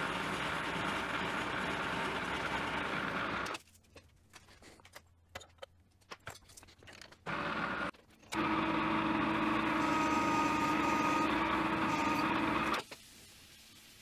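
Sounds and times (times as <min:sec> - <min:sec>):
metal lathe hum and whine: 0:07.3 - 0:12.7.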